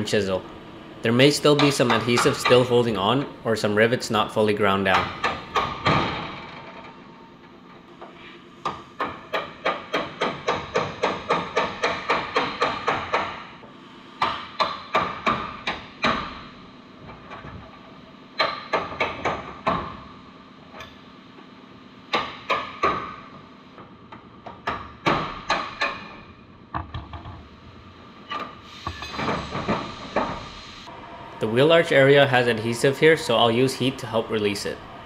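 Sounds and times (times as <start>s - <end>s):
hammer striking chisel on metal: 1.4s - 2.9s, 4.9s - 6.0s, 8.6s - 13.5s, 14.2s - 16.4s, 22.1s - 23.2s.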